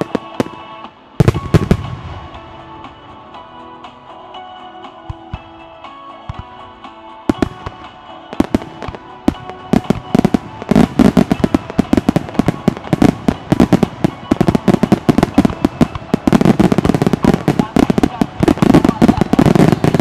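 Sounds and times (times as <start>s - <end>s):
fireworks launching and bursting: 0.0s - 3.0s, 7.3s - 20.0s
loudspeaker music: 5.6s - 20.0s.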